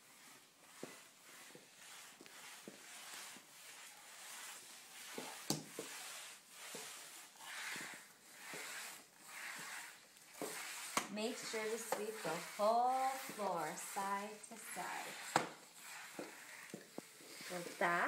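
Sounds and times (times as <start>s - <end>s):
mop swishing on tiled floor: 0.0s - 18.0s.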